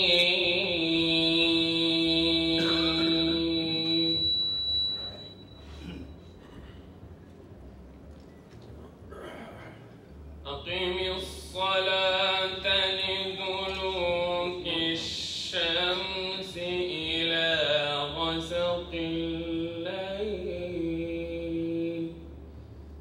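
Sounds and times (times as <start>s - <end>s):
man chanting melodically: 0.0s - 4.4s, 10.4s - 22.3s.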